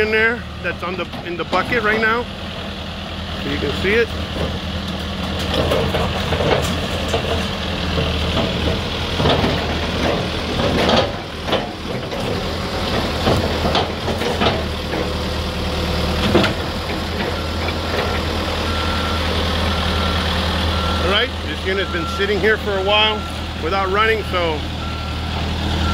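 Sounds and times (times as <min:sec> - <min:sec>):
diesel engine running: 0:00.0 - 0:25.9
falling debris knocks and clatter: 0:04.3 - 0:15.2.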